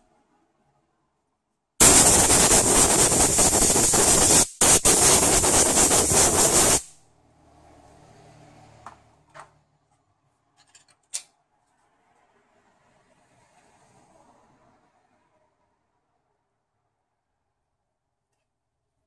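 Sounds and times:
compressed air blow gun hissing: 1.8 - 7.0.

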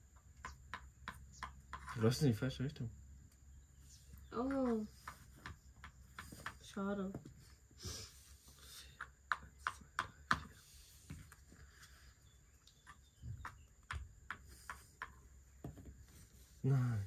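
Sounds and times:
game pieces tapping on board: 0.2 - 2.0, 4.4 - 7.4, 9.0 - 10.6, 12.8 - 16.0.

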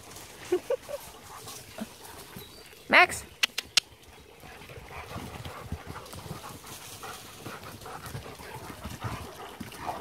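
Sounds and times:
dog paws thudding on ground: 4.9 - 10.0.

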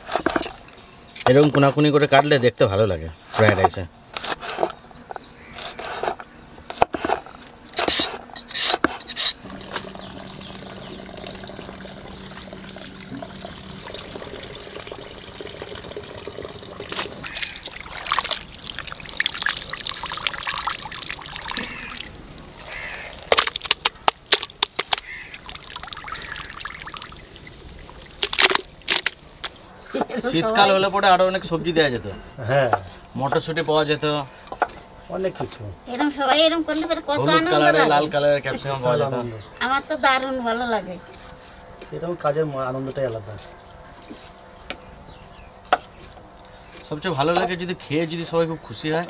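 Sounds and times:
liquid pouring and trickling: 9.4 - 29.2.

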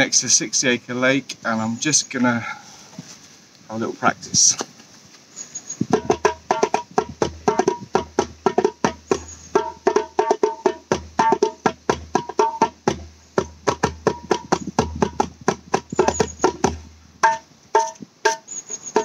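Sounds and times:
djembe played by hand: 5.9 - 18.4.

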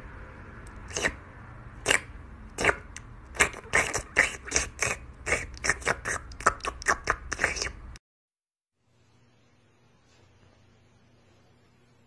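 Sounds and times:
cat licking bowl: 0.8 - 1.2, 1.8 - 7.8.

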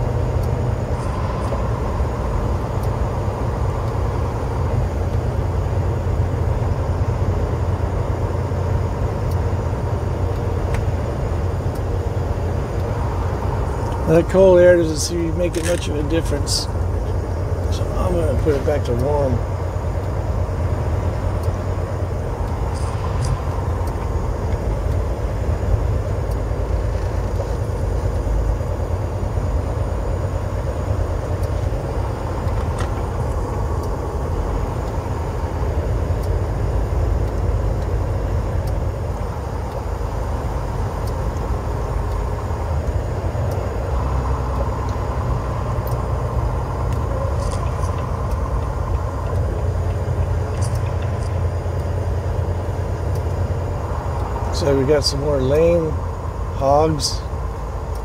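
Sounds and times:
truck engine and road noise: 0.0 - 58.0.

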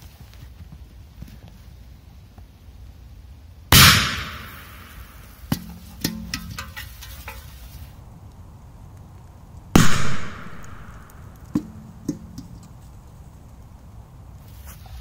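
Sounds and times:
small knocks: 11.4 - 13.0.

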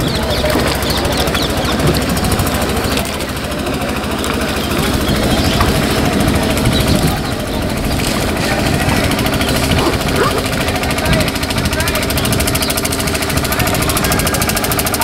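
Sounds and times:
boat engine chugging: 0.0 - 15.0.

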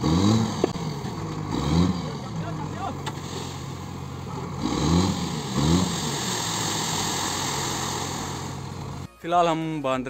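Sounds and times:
truck engine revving: 0.0 - 9.1
sand sliding with rushing hiss: 2.5 - 4.1, 4.8 - 9.1.

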